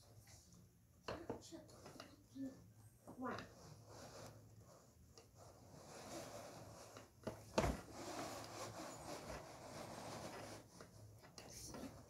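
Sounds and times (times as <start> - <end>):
fabric shade rustling as pulled: 3.6 - 12.0.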